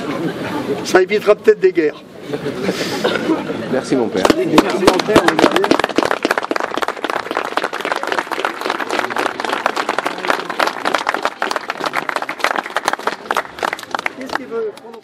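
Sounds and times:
crowd applauding: 4.2s - 15.0s.

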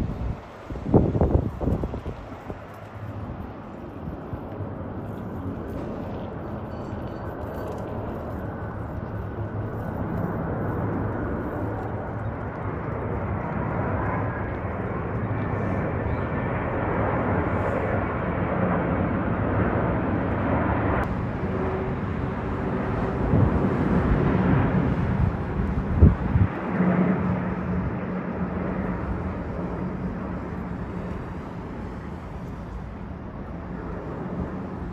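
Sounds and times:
jet plane roar overhead: 0.0s - 34.9s.

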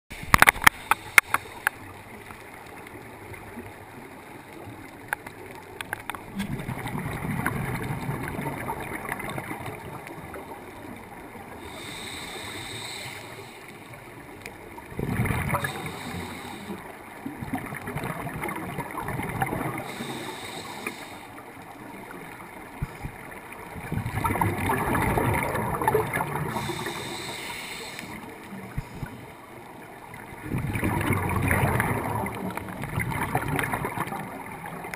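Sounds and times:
exhaled bubbles gushing: 6.2s - 11.8s, 14.7s - 16.3s, 17.2s - 20.2s, 22.7s - 27.3s, 30.0s - 34.9s
regulator inhalation hiss: 11.6s - 13.7s, 15.6s - 16.8s, 19.8s - 21.4s, 26.5s - 28.2s.

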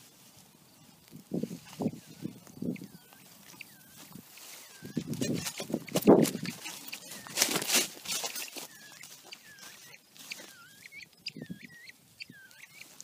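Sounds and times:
rustling through brush: 0.0s - 13.0s
quail whistled chirps: 1.5s - 13.0s.

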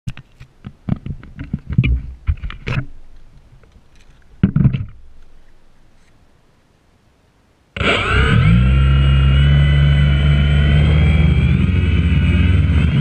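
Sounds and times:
drone handling clicks and knocks: 0.1s - 5.4s
drone thumping on asphalt: 4.4s - 5.0s.

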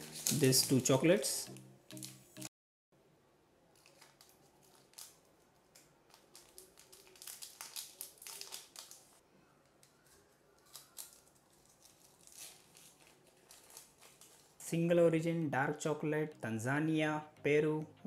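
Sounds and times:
wrapper crinkling: 0.0s - 2.2s, 3.7s - 14.7s.

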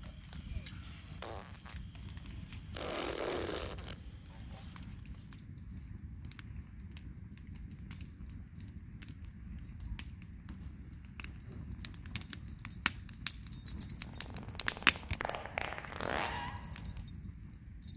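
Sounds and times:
campfire crackling and popping: 0.0s - 17.9s
metallic jingling: 13.3s - 17.9s.

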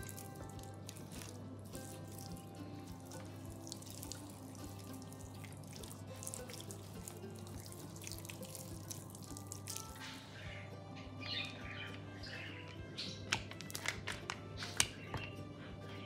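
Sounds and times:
water splashing: 0.0s - 10.4s
background music: 0.0s - 16.0s.

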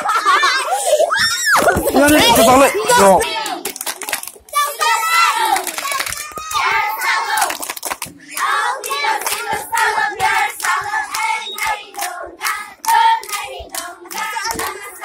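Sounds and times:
hands clapping: 1.8s - 4.7s, 5.4s - 15.0s
children singing: 4.5s - 15.0s.

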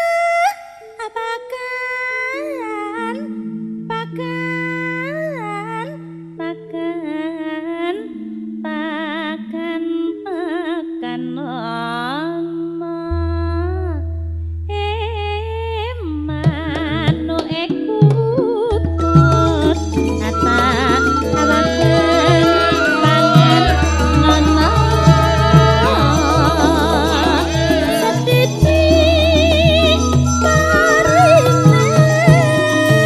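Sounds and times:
woman singing with vibrato: 0.0s - 14.0s, 14.7s - 33.0s
deep held bass tone: 13.1s - 17.3s, 18.8s - 33.0s
band with struck percussion: 16.4s - 33.0s
long held accompanying tones: 18.7s - 33.0s.

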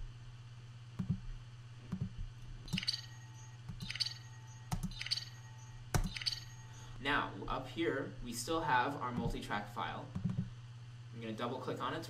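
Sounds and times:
low hum: 0.0s - 11.2s
processed sci-fi beeps: 2.7s - 6.9s
mouse clicks: 5.9s - 6.5s.

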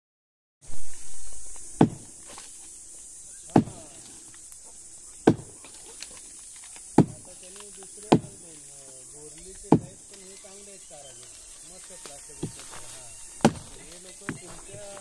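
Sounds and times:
insects buzzing: 0.6s - 15.0s
axe chopping into roots: 1.7s - 2.6s, 3.5s - 4.1s, 5.2s - 8.4s, 9.4s - 10.2s, 12.4s - 15.0s.

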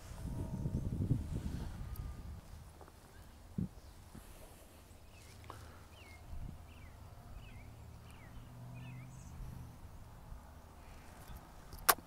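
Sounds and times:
faint low rumble: 0.0s - 11.7s
bird chirping: 4.8s - 10.1s.

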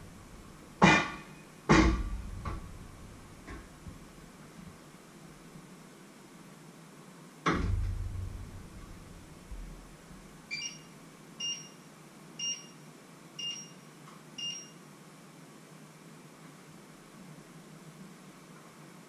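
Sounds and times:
heavy thump of pots and pans: 0.8s - 2.7s
short two-tone electronic beeps: 10.5s - 11.8s, 12.4s - 12.8s, 13.4s - 13.8s, 14.4s - 14.8s.

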